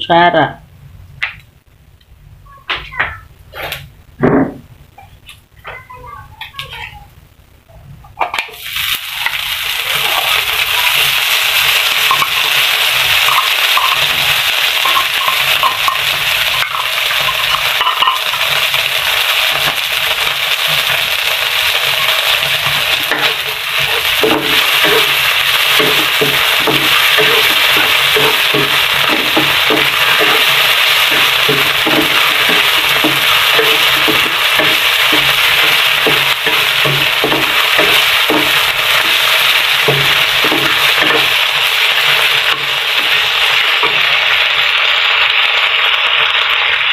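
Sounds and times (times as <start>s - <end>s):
meat sizzling in a frying pan: 8.3s - 46.9s
spatula scraping a pan: 21.9s - 43.2s.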